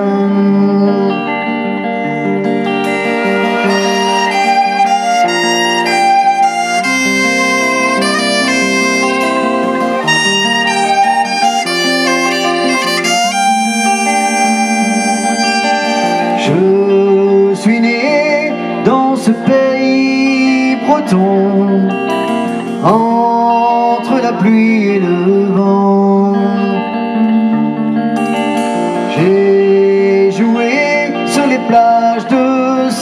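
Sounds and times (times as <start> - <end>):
violin melody: 0.0 - 19.1
electric guitar: 0.0 - 33.0.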